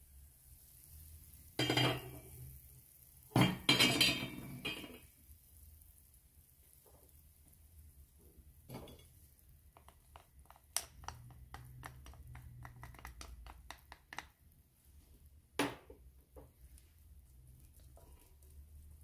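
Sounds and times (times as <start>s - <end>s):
spatula tapping glass bowl: 9.7s - 14.3s.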